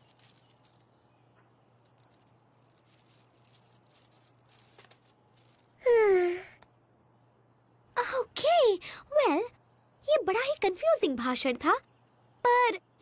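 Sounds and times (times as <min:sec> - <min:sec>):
person exclaiming: 0:05.8 - 0:06.6.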